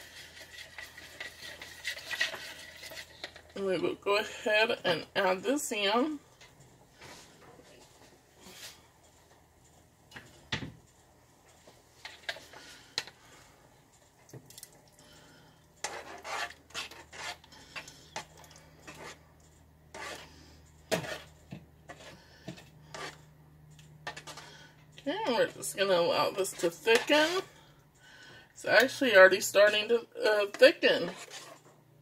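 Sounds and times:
metal spoon scraping a pot: 0.0 - 3.6, 15.8 - 19.2, 19.9 - 23.3, 24.0 - 27.5, 28.8 - 31.6.

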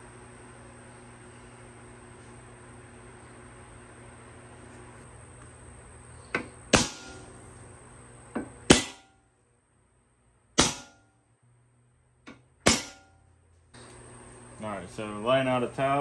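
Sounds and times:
center punch striking metal tubing: 6.4 - 7.3, 8.4 - 9.2, 10.6 - 11.2, 12.3 - 13.3.

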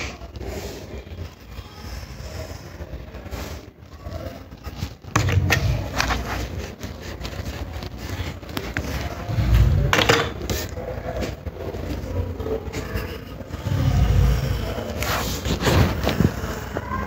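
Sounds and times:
hand rustling paper notebook: 5.6 - 9.5.

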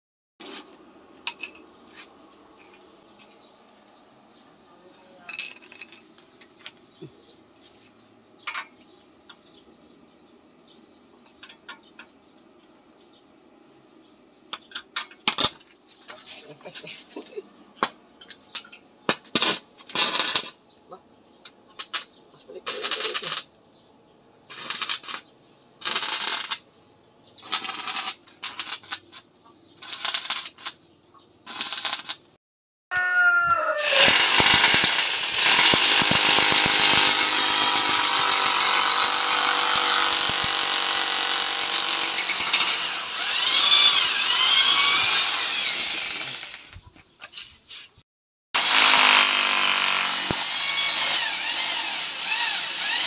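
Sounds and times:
hammer drill boring into concrete: 33.8 - 46.7, 48.6 - 53.0.

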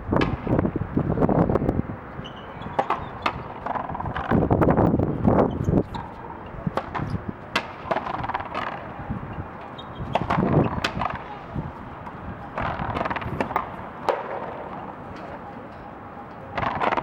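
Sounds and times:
rushing background noise: 0.0 - 17.0
ball struck by rackets: 0.1 - 0.7, 2.6 - 4.5, 5.4 - 15.0, 16.5 - 17.0
ball smacking off concrete wall: 6.8 - 8.9, 10.1 - 11.3, 12.0 - 14.7.

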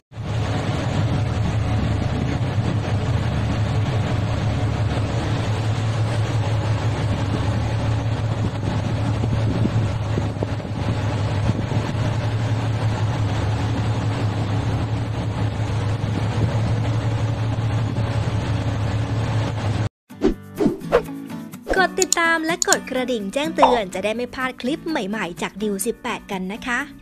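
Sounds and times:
wind noise on microphone: 0.2 - 15.4, 16.0 - 16.9
boat engines droning: 0.2 - 19.9.

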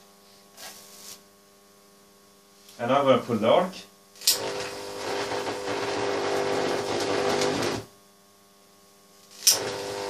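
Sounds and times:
mains hum: 0.0 - 10.0
electric arc buzzing: 0.6 - 8.0, 8.8 - 10.0
sharp electric snap: 4.2 - 7.9, 9.2 - 9.9.

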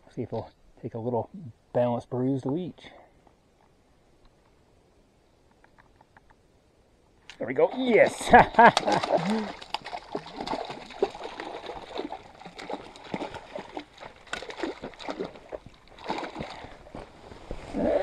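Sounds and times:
fish splashing in water: 8.1 - 16.9.

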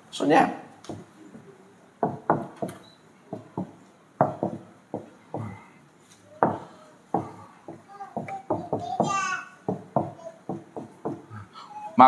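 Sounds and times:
marker tapping on whiteboard: 0.9 - 1.1, 2.0 - 5.5, 6.4 - 11.2.

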